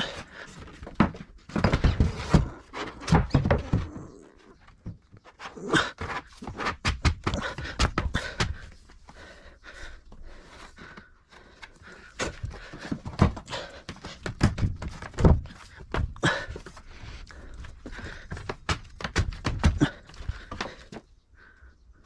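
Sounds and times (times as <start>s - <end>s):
knocks and thumps: 0.0s - 5.2s, 5.8s - 8.7s, 12.2s - 16.7s, 18.1s - 21.0s.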